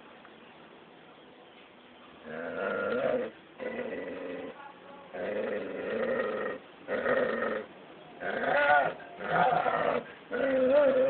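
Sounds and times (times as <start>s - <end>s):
animal wavering cries: 5.2s - 11.0s.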